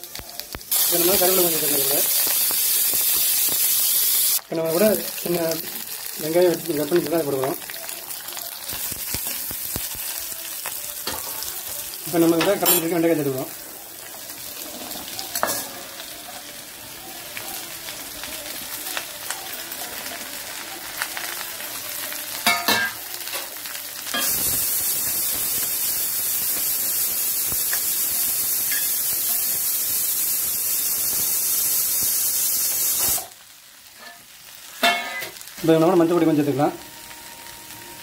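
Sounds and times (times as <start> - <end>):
okra sizzling in hot oil: 0.0 - 38.0.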